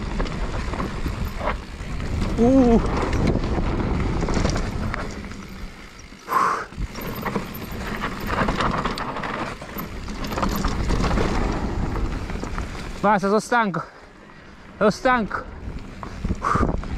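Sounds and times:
bike rattling: 0.0 - 16.9
bike tyres rolling on dirt: 0.0 - 16.9.

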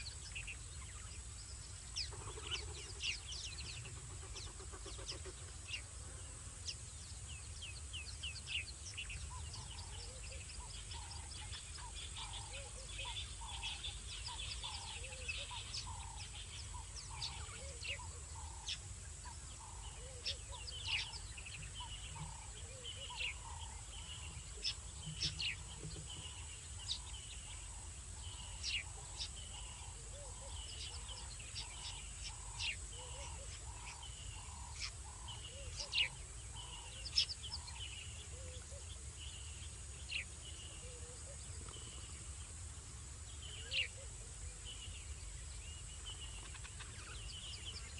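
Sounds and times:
soft repeating animal call: 2.0 - 6.4, 9.2 - 39.0, 46.1 - 47.9.

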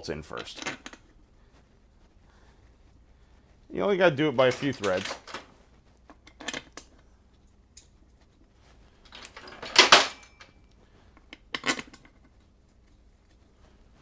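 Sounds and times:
metal bolts clinking: 4.4 - 5.5, 9.0 - 10.6.

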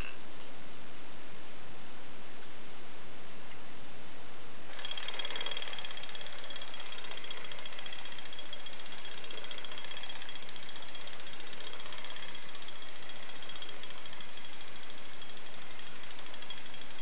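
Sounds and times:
toy drumming mechanism rattling: 4.7 - 17.0.

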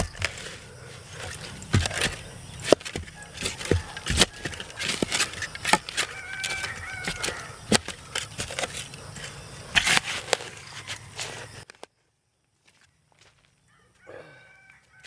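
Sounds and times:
shovel striking and scraping soil: 0.0 - 11.8.

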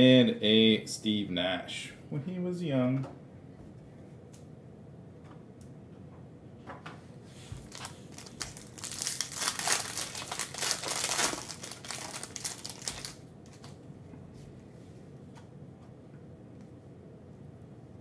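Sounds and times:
foil wrapper crinkling: 7.6 - 13.7.

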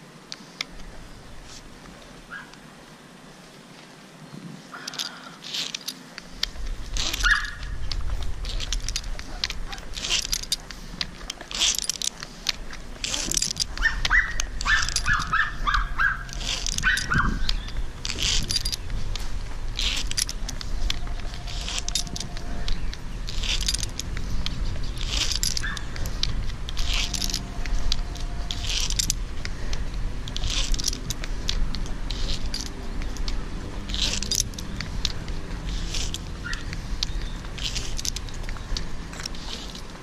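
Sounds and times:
rope and metal hardware clinking: 4.6 - 40.0
dog barking: 13.8 - 17.4.

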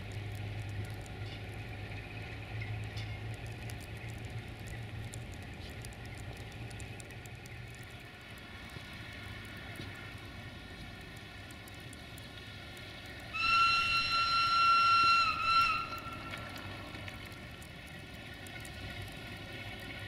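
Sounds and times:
low rumble of approaching train: 0.0 - 20.0
locomotive horn blast: 13.3 - 16.8.

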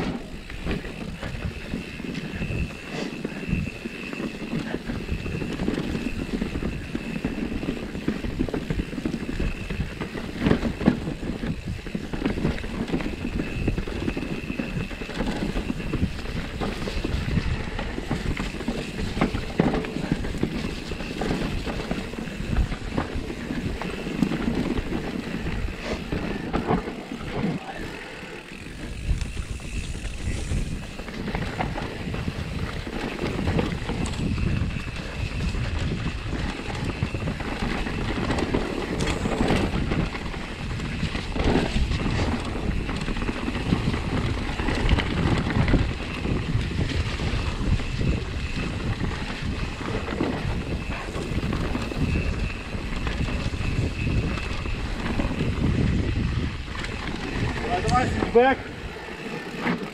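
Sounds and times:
wind rumbling on microphone: 0.0 - 59.9.

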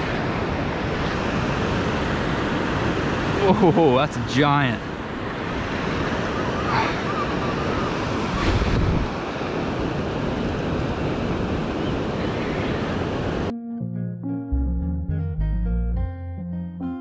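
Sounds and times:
ocean surf breaking: 0.0 - 13.5.

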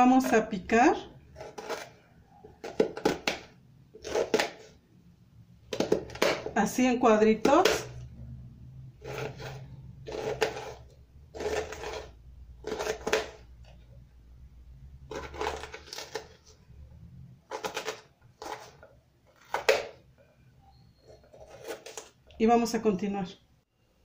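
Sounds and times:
knife cutting onion on board: 1.3 - 4.7, 9.0 - 13.5.

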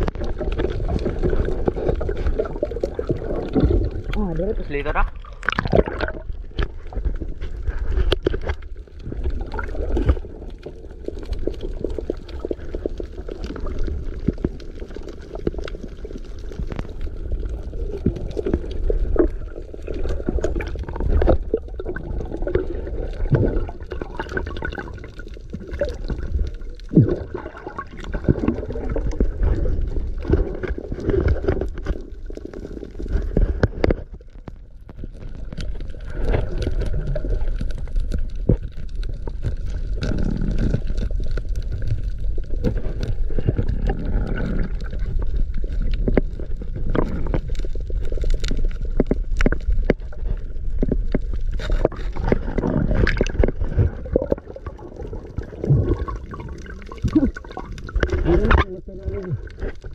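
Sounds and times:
water sloshing and gurgling: 0.0 - 59.9.

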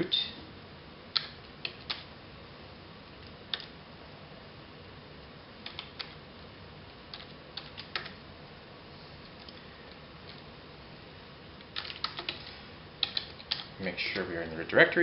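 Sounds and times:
keyboard keystrokes: 1.1 - 2.1, 5.6 - 6.2, 7.1 - 8.2, 11.6 - 12.4, 13.0 - 13.7.

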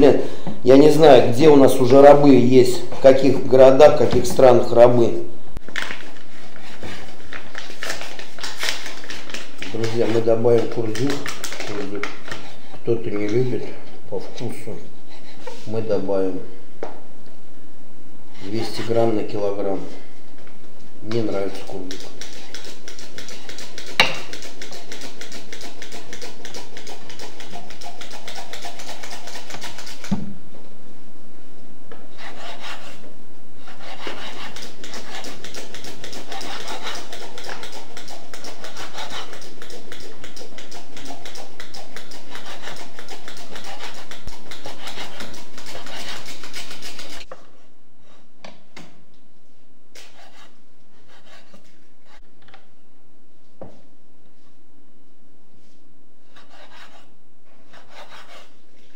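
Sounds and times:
knife chopping on wooden board: 21.9 - 27.2.

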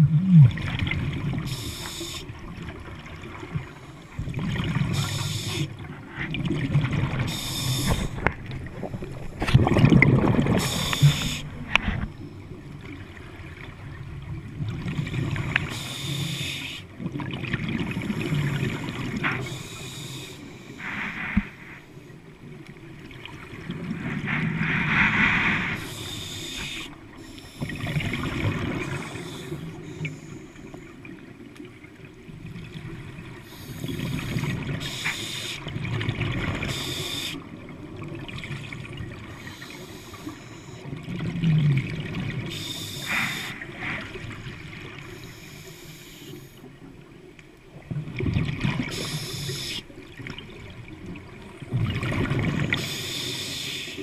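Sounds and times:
bubbling exhale underwater: 0.0 - 1.5, 4.3 - 12.0
regulator hiss on inhale: 1.5 - 2.3, 4.9 - 5.7, 7.3 - 8.2, 10.6 - 11.8, 15.7 - 16.9, 19.2 - 22.1, 24.2 - 30.9, 33.4 - 35.7, 36.7 - 37.4, 39.4 - 40.9, 42.5 - 44.4, 45.0 - 46.7, 48.9 - 49.9, 52.7 - 54.0.

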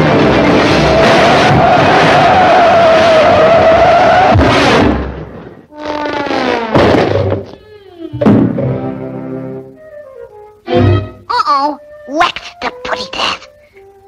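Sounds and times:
cartoon speeding vehicle racket: 0.0 - 5.0
loud crash: 0.0 - 7.6, 8.2 - 8.9
cartoon hit: 5.8 - 7.5.

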